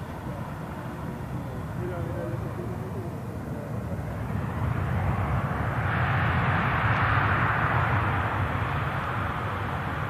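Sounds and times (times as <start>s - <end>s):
airliner engines roaring: 0.0s - 10.0s
wind rumbling on microphone: 0.0s - 10.0s.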